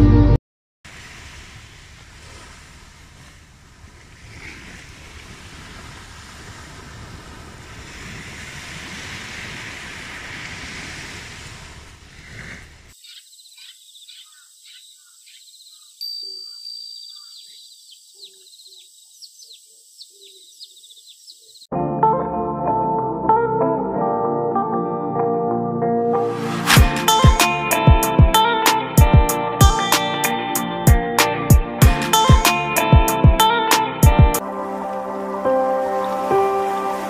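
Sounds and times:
waves washing onto beach: 0.9s - 13.0s, 26.2s - 27.2s, 34.5s - 37.0s
high chirping bird calls: 13.0s - 21.7s.

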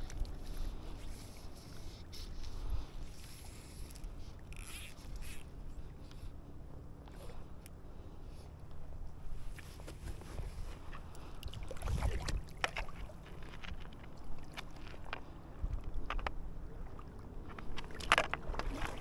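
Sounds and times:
wind rumble on microphone: 9.1s - 13.0s, 13.7s - 19.0s
river water splashing: 10.6s - 15.7s, 16.4s - 19.0s.

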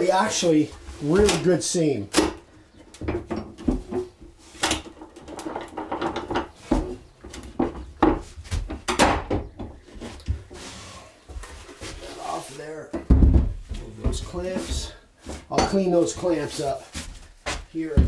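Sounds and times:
wooden and metal knocks: 2.3s - 10.4s, 12.9s - 16.0s.

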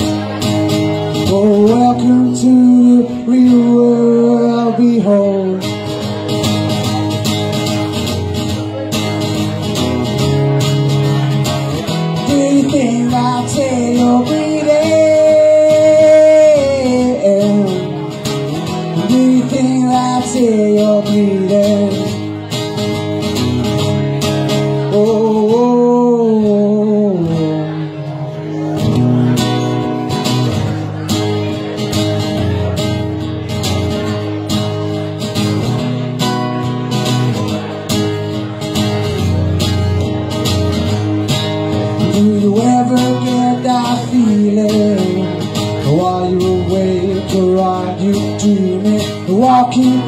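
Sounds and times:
acoustic guitar strumming: 0.0s - 50.0s
man singing: 1.0s - 6.9s, 11.0s - 22.8s, 24.1s - 29.0s, 41.3s - 50.0s.

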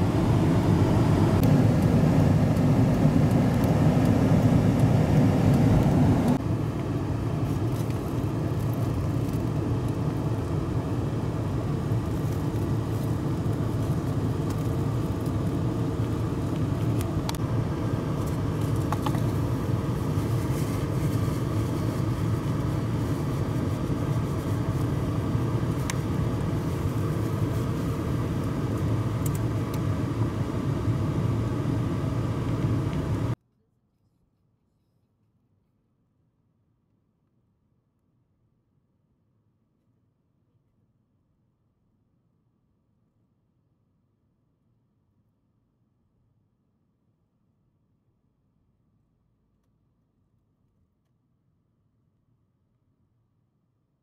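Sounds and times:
jet engines rumbling: 0.0s - 33.4s.

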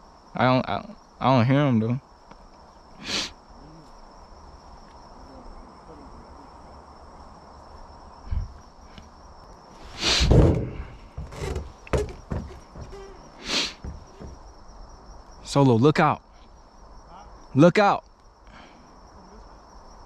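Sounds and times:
insects droning: 0.0s - 20.0s
dull thump: 9.9s - 14.4s
loud rustling knock: 9.9s - 14.4s.

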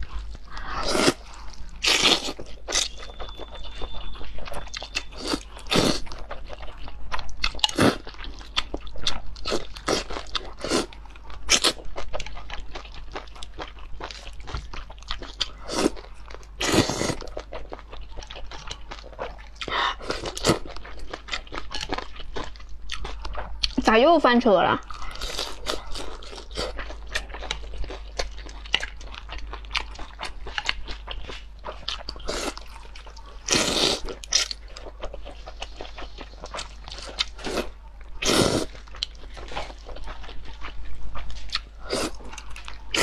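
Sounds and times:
chewing and mouth clicks: 0.0s - 23.8s, 24.8s - 43.0s
wet noodle slurps: 38.2s - 38.7s.

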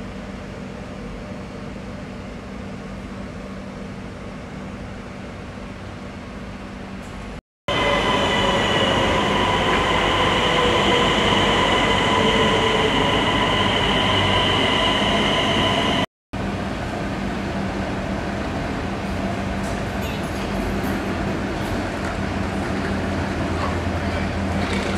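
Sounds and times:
train rumble and hum: 0.0s - 24.9s
electric train slowing: 7.0s - 24.9s.

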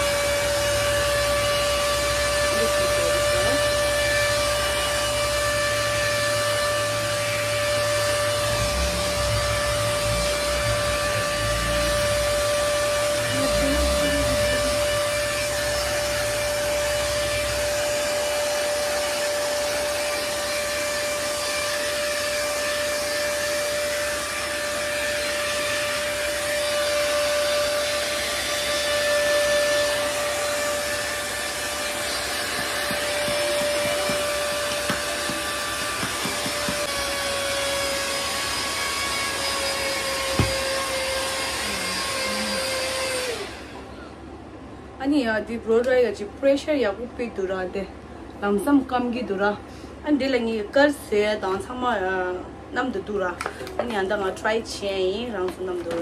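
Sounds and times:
hot air brush blowing and whining: 0.0s - 44.1s.

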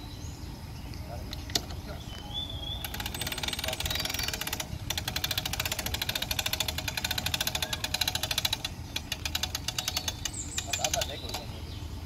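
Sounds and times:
winch ratchet clicking: 2.8s - 11.5s.

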